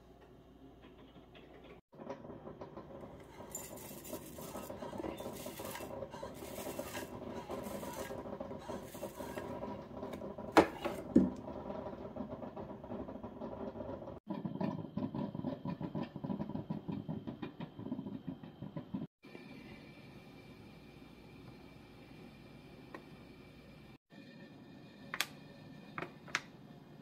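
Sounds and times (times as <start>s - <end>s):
oats pouring into a bowl: 3.4s - 8.2s.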